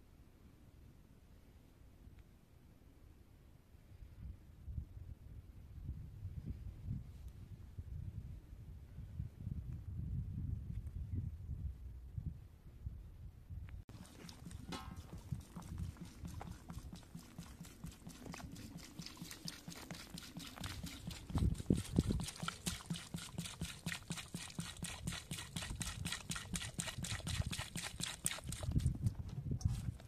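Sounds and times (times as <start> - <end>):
water pouring onto lettuce leaves: 13.9 - 29.0.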